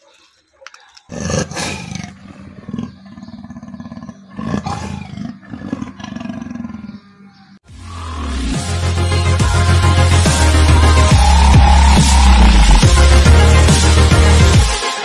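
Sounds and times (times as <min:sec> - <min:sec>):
leopard growling and roaring: 0:01.1 - 0:07.4.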